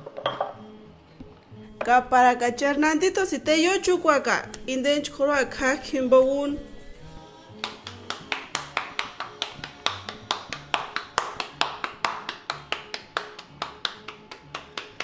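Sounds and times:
hands patting dough: 7.0 - 15.0.

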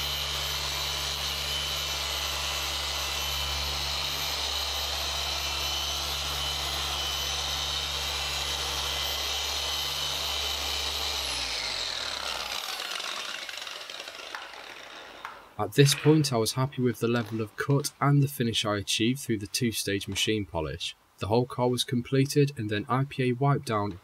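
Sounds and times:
machine polisher running: 0.0 - 15.5.

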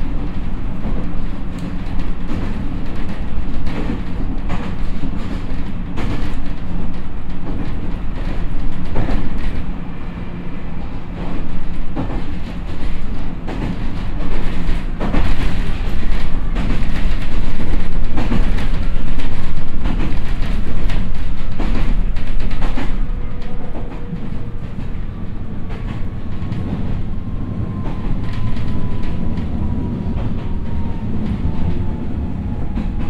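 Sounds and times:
wheels clacking over rail joints: 0.0 - 9.7, 10.9 - 27.1
train wheels rumbling on rail: 0.0 - 33.0.

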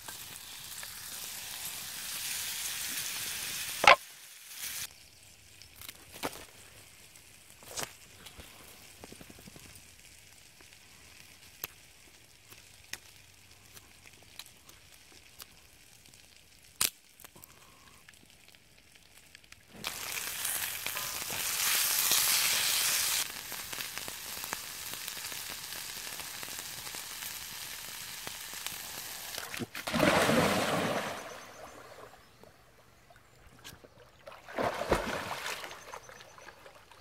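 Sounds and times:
onions sizzling in a skillet: 0.0 - 5.8, 19.8 - 29.4.

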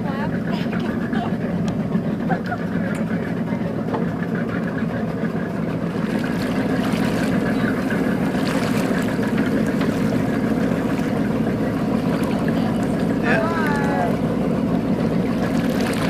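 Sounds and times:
boat engine droning: 0.0 - 16.0.

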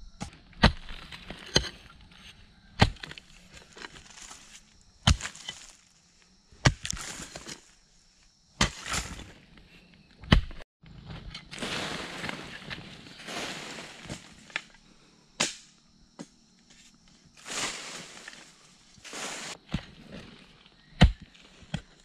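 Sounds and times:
hoe chopping into earth: 0.2 - 1.8, 2.8 - 5.8, 6.6 - 7.6, 8.6 - 9.3, 10.2 - 10.6, 15.4 - 16.3, 19.1 - 21.9
rustle of falling soil: 3.0 - 6.0, 11.4 - 14.7, 16.7 - 20.8.

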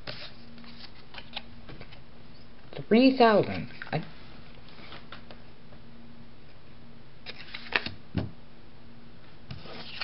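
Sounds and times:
faint hum: 0.0 - 10.0.

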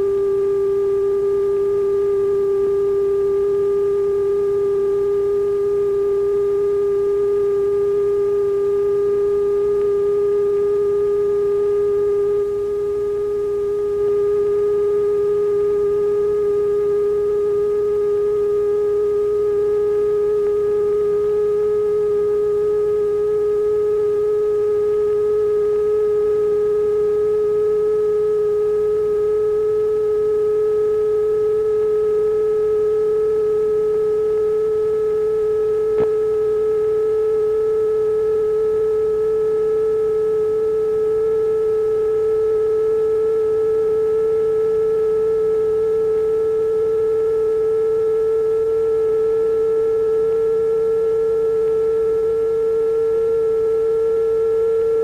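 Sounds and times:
rising sine-wave tone: 0.0 - 55.0
faint click: 35.9 - 36.2.

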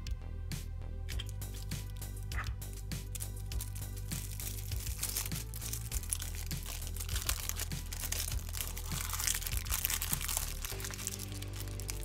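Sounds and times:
background music: 0.0 - 12.0
paper wrapping crinkling: 2.7 - 12.0.

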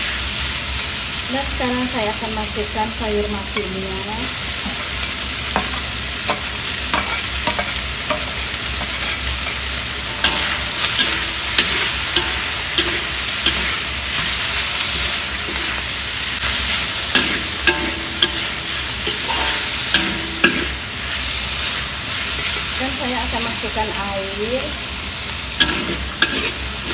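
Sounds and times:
food sizzling in a wok: 0.0 - 26.9
spatula scraping against wok: 5.5 - 22.8, 25.6 - 26.9.

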